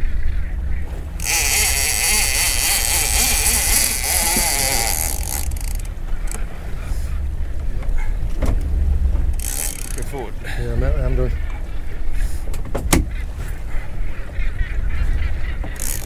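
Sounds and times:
wind rumbling on microphone: 0.0 - 15.9
fishing reel drag buzzing: 1.0 - 6.4, 9.3 - 10.1, 15.7 - 16.0.

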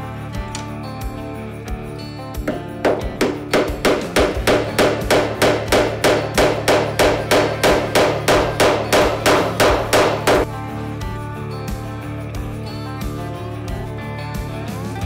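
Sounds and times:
small hammer tapping wood: 2.5 - 10.5.

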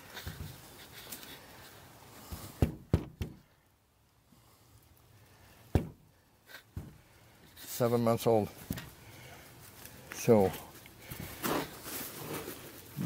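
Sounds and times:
boot tapping on wooden board: 2.3 - 3.4, 5.7 - 6.0.

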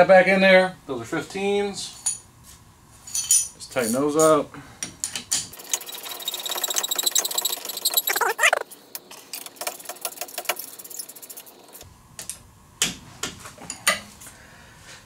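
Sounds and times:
ratchet wrench clicking: 5.5 - 8.2
short rising squeak: 5.6 - 8.7.

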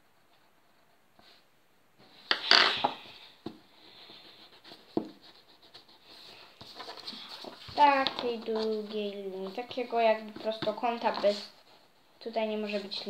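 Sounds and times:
paper rustling: 4.0 - 11.6.

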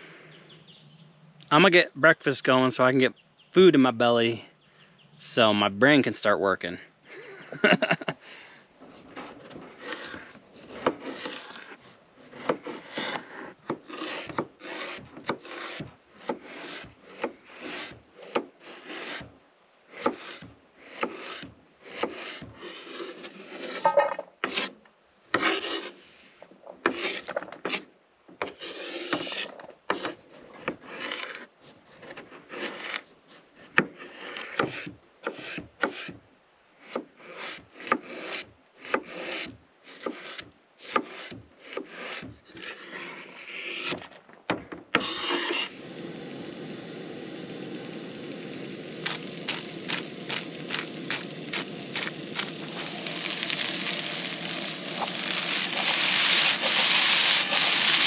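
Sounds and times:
knife scraping through potato: 8.9 - 19.3, 19.9 - 24.8, 25.4 - 26.1, 26.9 - 36.1, 36.8 - 44.1, 45.0 - 45.8, 48.1 - 58.0
knife knocking on wooden board: 23.8 - 24.3.

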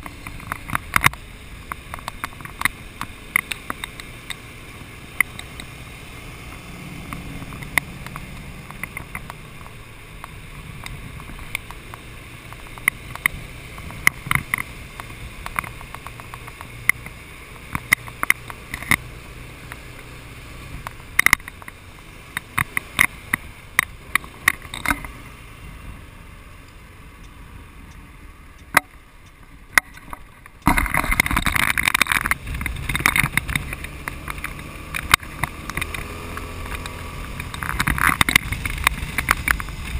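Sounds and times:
sharp clicks and taps: 0.0 - 4.4, 5.1 - 5.8, 6.4 - 19.0, 20.8 - 25.2, 28.6 - 39.9
motorcycle engine running: 0.0 - 39.9
wind rushing on microphone: 30.6 - 39.9.

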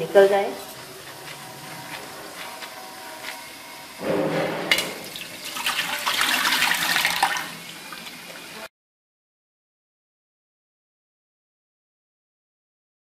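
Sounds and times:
water splashing into a steel sink: 4.7 - 8.6.

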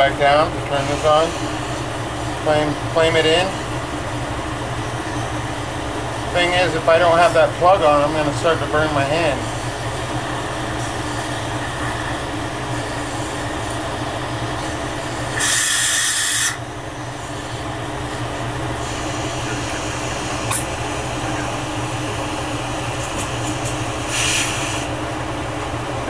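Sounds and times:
glassblowing torch hissing: 0.0 - 3.7, 6.2 - 17.8, 18.7 - 25.1
loud burst of hiss: 0.7 - 1.9, 15.2 - 16.6, 23.0 - 25.0.

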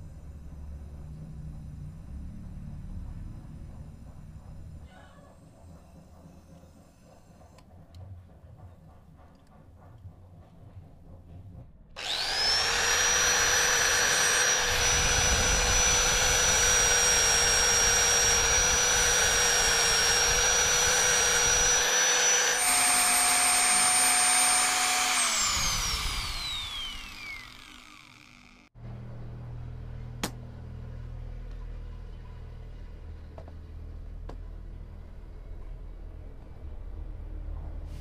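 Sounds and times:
angle grinder grinding metal: 12.0 - 28.7.

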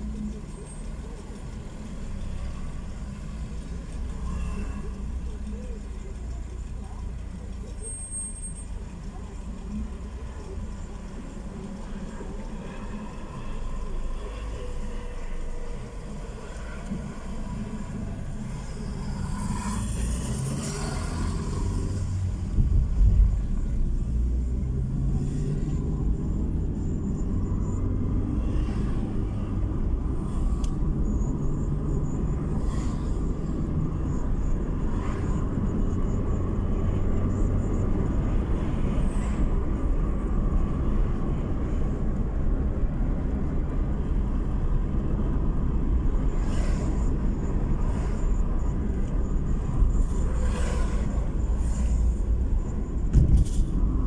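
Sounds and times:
car tyres and engine rumble: 0.0 - 54.0
brief thump: 53.1 - 53.6.

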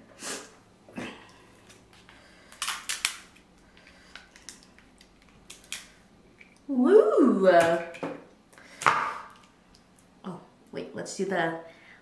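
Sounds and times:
crab shell cracking: 2.5 - 6.7.

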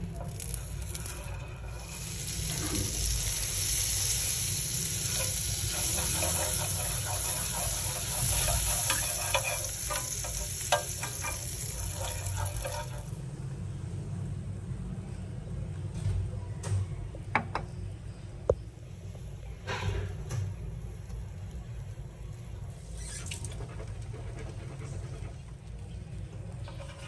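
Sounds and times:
fat sizzling in frying pan: 0.0 - 13.5
metal spoon scraping pan: 4.9 - 13.2.

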